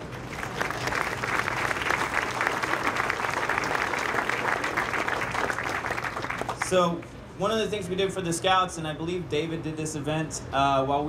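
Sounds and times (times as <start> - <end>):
crowd applauding: 0.0 - 6.8.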